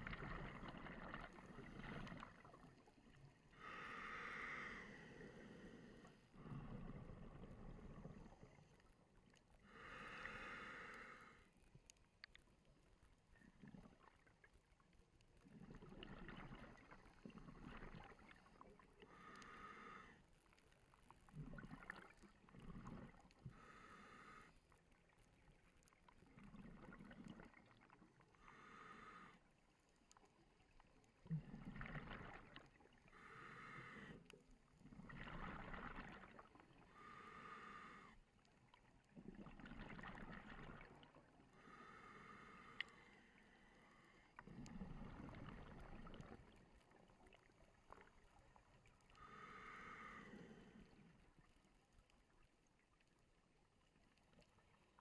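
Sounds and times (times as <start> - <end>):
bubbling exhale underwater: 0.0 - 2.8, 3.5 - 8.6, 15.5 - 18.4, 21.3 - 23.3, 31.2 - 32.7, 34.8 - 38.0, 39.2 - 41.4, 44.4 - 46.8
diver inhaling through regulator: 3.6 - 8.2, 9.6 - 11.5, 19.1 - 20.2, 23.5 - 24.6, 28.4 - 29.4, 33.1 - 34.3, 36.9 - 38.2, 41.5 - 45.2, 49.2 - 51.1.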